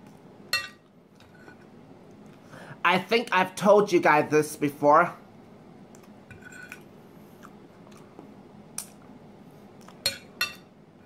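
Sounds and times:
quiet chewing: 7.3 - 9.0.

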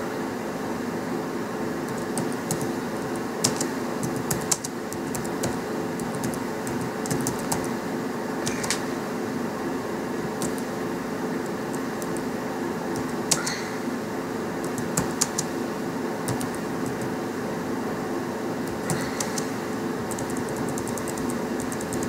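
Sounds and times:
steady droning hum: 0.0 - 22.0
keyboard keys clicking: 1.9 - 7.7, 8.4 - 8.8, 10.4 - 10.7, 11.4 - 12.3, 13.0 - 13.6, 14.6 - 15.5, 16.3 - 17.2, 18.7 - 19.5, 20.1 - 22.0.

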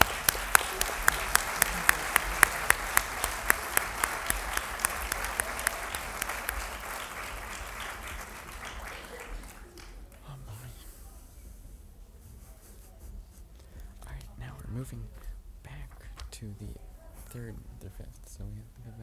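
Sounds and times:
audience applauding: 0.0 - 10.6
hands clapping loudly and evenly: 0.0 - 10.7.

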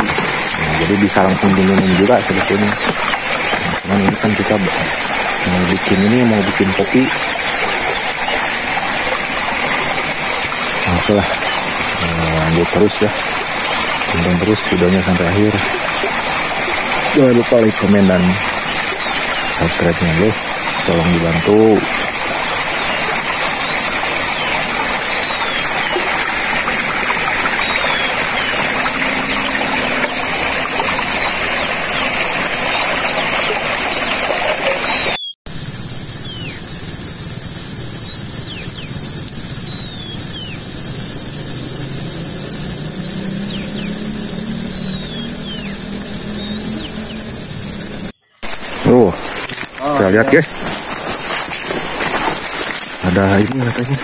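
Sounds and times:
stream running over rocks: 0.0 - 35.2, 38.5 - 54.0
steady high-pitched drone: 35.5 - 48.1.

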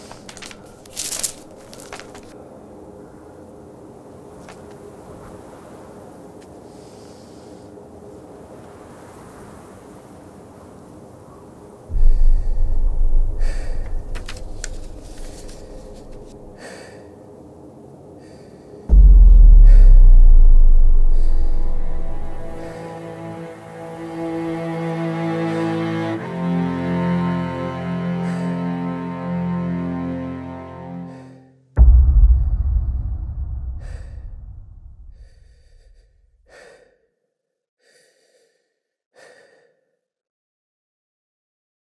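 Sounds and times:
paper pages rustling: 0.0 - 2.4, 14.1 - 16.4
deep boom: 11.9 - 16.5, 18.9 - 22.7, 31.8 - 36.0
deep sub-bass rumble: 11.9 - 16.5, 18.9 - 22.7, 31.8 - 36.0.

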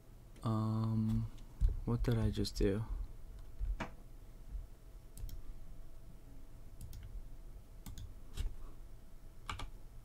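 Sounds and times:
faint steady hum: 0.0 - 10.0
computer keys clicking: 5.2 - 5.4, 6.8 - 7.1, 7.8 - 8.5, 9.4 - 9.8.

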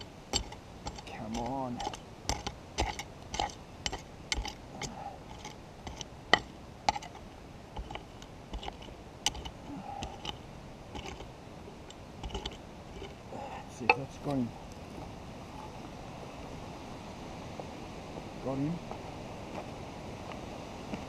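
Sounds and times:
pick striking stony ground: 0.0 - 13.2, 13.8 - 15.8.

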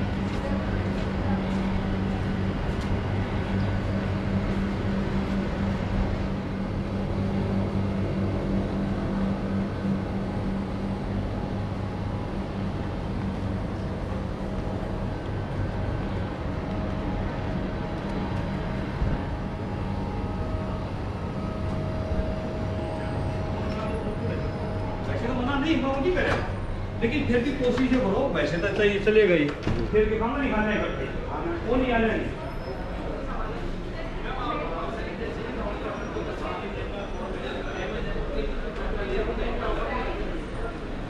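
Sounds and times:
low hum: 0.0 - 28.8
street background noise: 0.0 - 41.0.

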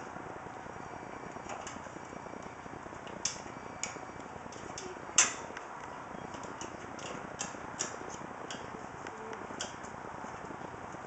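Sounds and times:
screwdriver clicking on metal: 6.3 - 9.9.

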